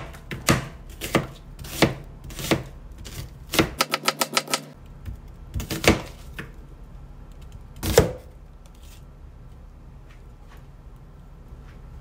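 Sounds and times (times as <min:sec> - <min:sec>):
knife chopping onto cutting board: 0:00.0 - 0:06.5, 0:07.8 - 0:08.3.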